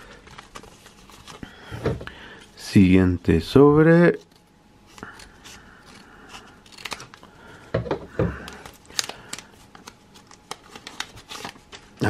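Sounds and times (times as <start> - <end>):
foil wrapper crinkling: 0.0 - 1.7, 4.1 - 7.3, 8.4 - 12.0
scissors snipping: 6.7 - 7.2.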